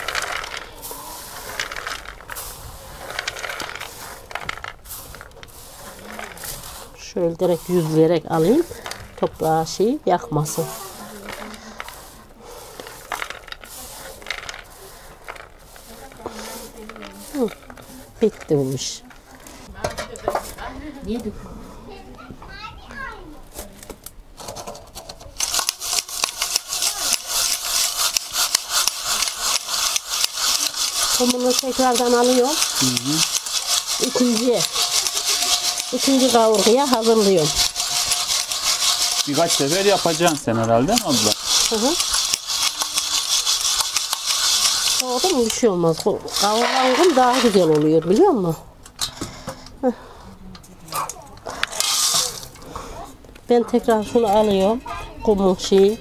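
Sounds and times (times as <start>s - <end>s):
chickpeas clattering onto metal: 0.0s - 6.8s, 12.8s - 19.0s, 25.4s - 48.6s, 51.7s - 52.6s
broom sweeping iron griddle: 0.0s - 19.7s, 25.4s - 48.4s, 51.7s - 52.5s.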